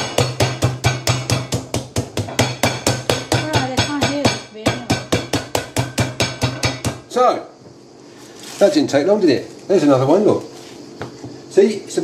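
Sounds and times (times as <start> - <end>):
meat mallet pounding chicken: 0.0 - 7.0.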